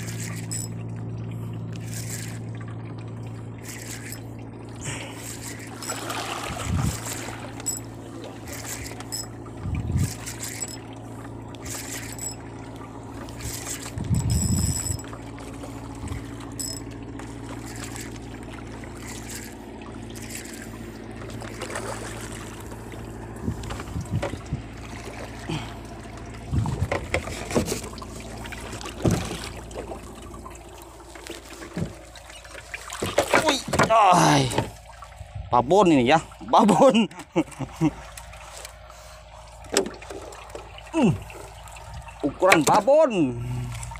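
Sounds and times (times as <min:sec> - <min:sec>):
thumps from fishing rod and reel: 0:00.0 - 0:01.1, 0:03.6 - 0:04.3, 0:05.2 - 0:24.7, 0:26.5 - 0:30.2, 0:31.1 - 0:34.8, 0:39.6 - 0:40.7, 0:41.9 - 0:42.9
boat motor humming: 0:00.0 - 0:43.9.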